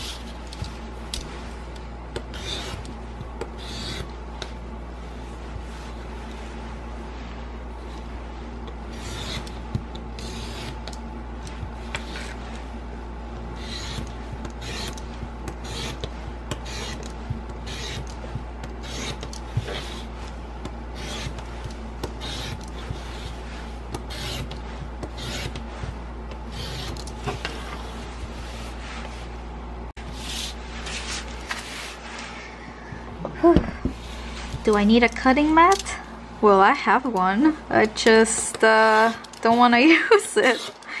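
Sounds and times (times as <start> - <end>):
steady low hum: 0.0 - 41.0
utility knife cutting paper: 2.2 - 3.0, 8.9 - 12.5, 13.6 - 25.8, 26.4 - 28.7.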